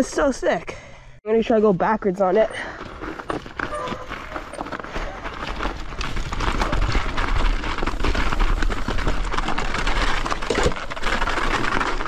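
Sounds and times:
mountain bike riding on snow: 0:01.8 - 0:12.0.

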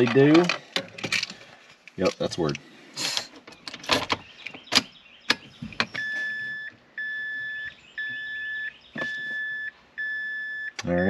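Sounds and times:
high electronic beep: 0:06.0 - 0:11.0.

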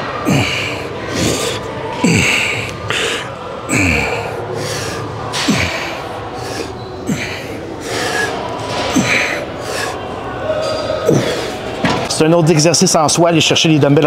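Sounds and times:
man breathing hard: 0:00.0 - 0:10.1, 0:11.1 - 0:11.6
man grunting: 0:00.2 - 0:01.4, 0:02.0 - 0:02.6, 0:03.7 - 0:04.3.

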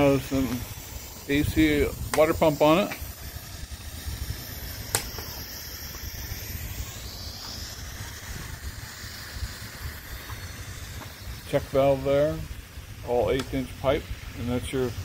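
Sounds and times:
faint hiss: 0:00.0 - 0:15.0
low outdoor rumble: 0:00.0 - 0:15.0
sharp click: 0:04.9 - 0:05.4.

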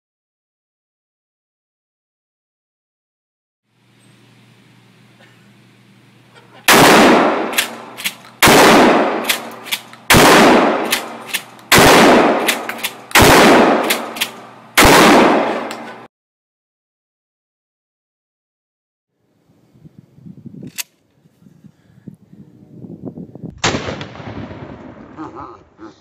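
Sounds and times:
shotgun blasts echoing: 0:06.7 - 0:16.1, 0:23.6 - 0:25.2
shotgun pump clacks: 0:07.5 - 0:08.4, 0:09.2 - 0:10.1, 0:10.8 - 0:11.7, 0:12.4 - 0:13.2, 0:13.8 - 0:14.4.

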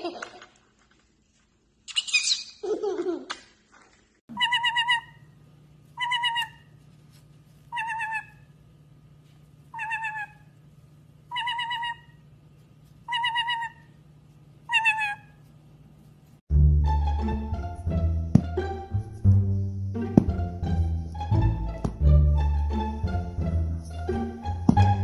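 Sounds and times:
parrot warbling trilled call: 0:01.9 - 0:02.6, 0:04.3 - 0:05.3, 0:06.0 - 0:06.7, 0:07.7 - 0:08.5, 0:09.7 - 0:10.5, 0:11.3 - 0:12.2, 0:13.1 - 0:13.9, 0:14.7 - 0:15.4.

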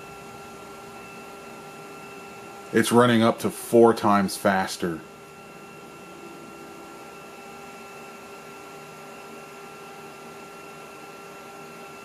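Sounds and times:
computer hum and hiss: 0:00.0 - 0:12.0
faint whining tones: 0:05.0 - 0:12.0.

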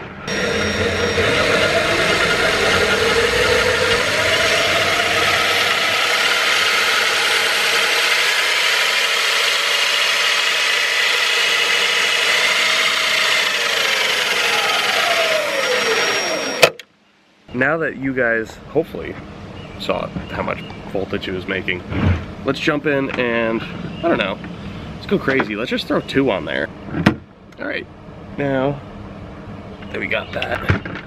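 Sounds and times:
cordless drill whining: 0:00.3 - 0:16.8.

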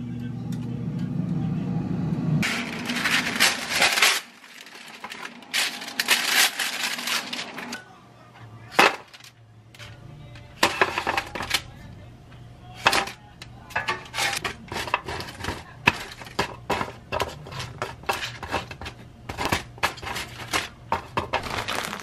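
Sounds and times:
parchment paper rustling: 0:02.4 - 0:07.8, 0:13.8 - 0:22.0.

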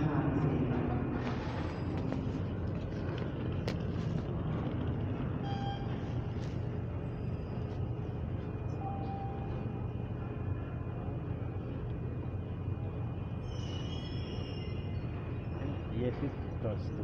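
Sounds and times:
train idling rumble: 0:00.0 - 0:17.0
short beeping tone: 0:05.4 - 0:06.0, 0:08.8 - 0:09.7.

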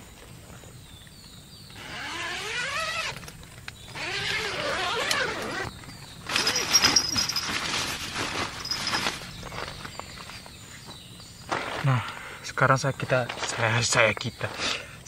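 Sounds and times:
tent fabric rustling: 0:03.9 - 0:10.5.

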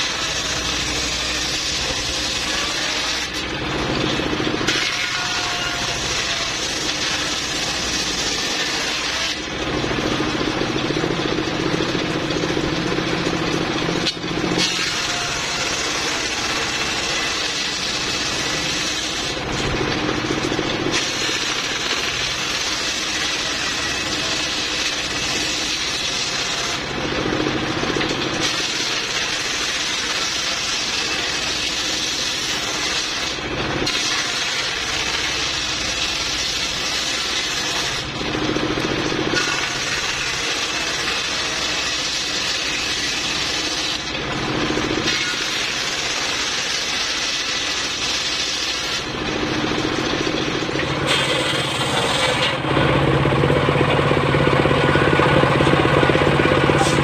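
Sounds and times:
diesel engine running: 0:00.0 - 0:29.2, 0:37.8 - 0:41.8, 0:43.6 - 0:45.1, 0:49.0 - 0:57.0
circular saw ripping wood: 0:00.0 - 0:53.3, 0:53.9 - 0:57.0.

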